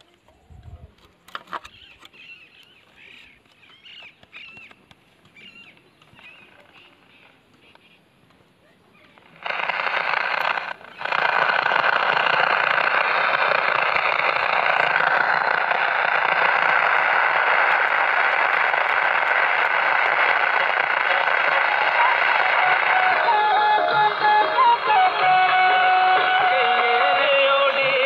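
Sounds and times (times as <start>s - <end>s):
radio static hiss: 8.9s - 28.0s.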